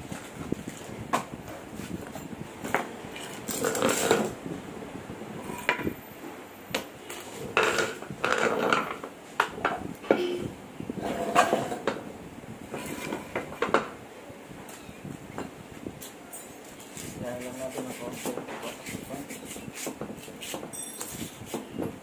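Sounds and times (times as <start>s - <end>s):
metal clinks and scraping: 5.4s - 6.1s, 16.3s - 17.1s, 20.6s - 21.5s.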